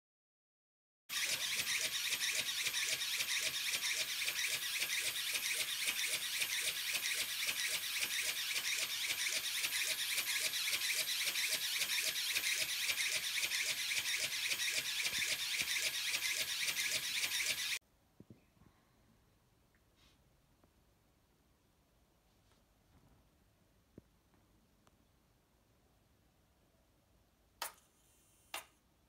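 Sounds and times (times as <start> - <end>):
small motor whining with pulse: 1.1 - 17.8.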